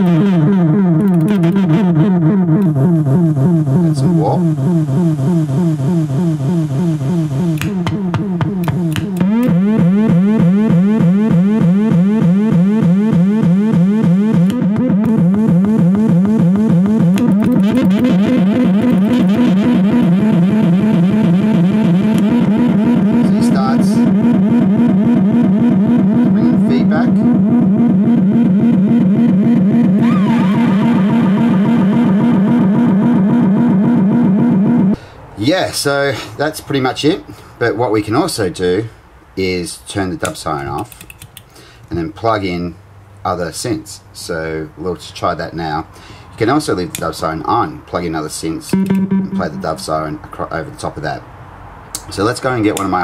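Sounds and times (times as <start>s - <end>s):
higher tone warbling rapidly: 0.0s - 35.0s, 48.7s - 50.2s
low pulsing electronic tone: 0.0s - 35.0s, 48.7s - 50.1s
synth siren whooping: 0.0s - 35.0s, 48.7s - 50.1s
sharp clicks: 1.0s - 1.6s, 6.5s - 10.2s, 13.7s - 24.4s, 40.2s - 41.5s.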